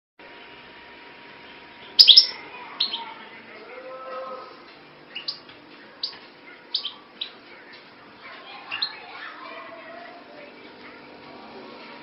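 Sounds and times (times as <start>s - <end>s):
steady hum: 0.2s - 12.0s
small bird chirping: 1.8s - 3.1s, 5.1s - 7.4s, 8.5s - 9.2s.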